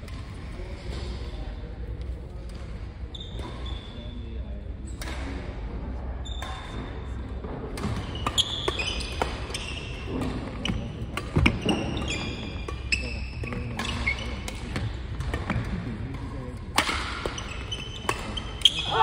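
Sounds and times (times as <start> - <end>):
shoes squeaking on floor: 3.1 - 4.2, 7.9 - 14.8, 17.2 - 19.0.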